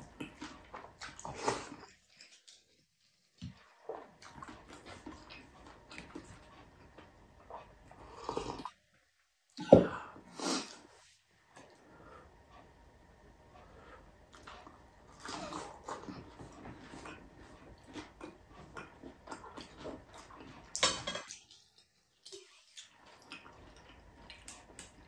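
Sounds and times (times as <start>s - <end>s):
person chewing crispy food: 0.0s - 2.8s, 3.6s - 8.7s, 14.3s - 25.0s.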